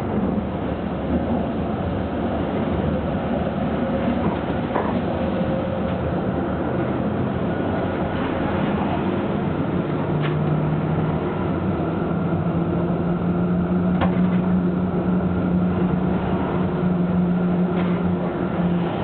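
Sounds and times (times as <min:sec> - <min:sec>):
wheels rumbling on rails: 0:00.0 - 0:19.0.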